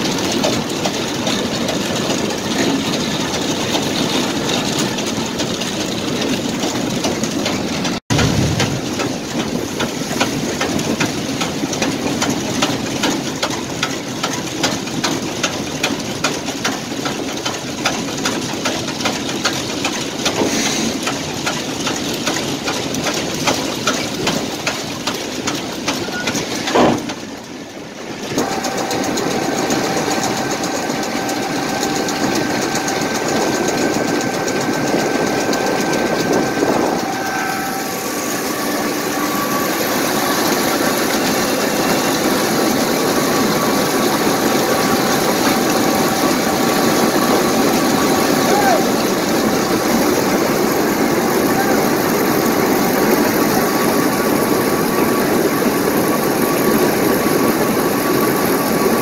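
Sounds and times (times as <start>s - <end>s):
machinery drone: 6.3s - 10.6s, 28.3s - 59.0s.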